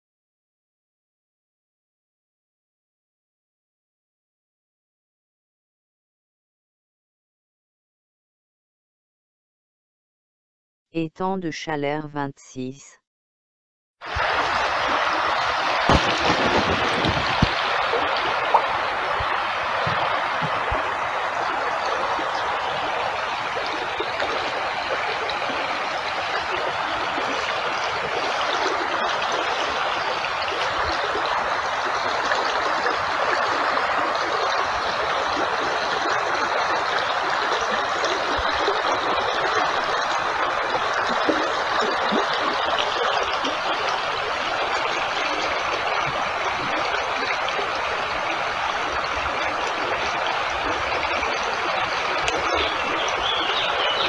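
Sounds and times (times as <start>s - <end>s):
stream water rushing: 14.0s - 54.0s.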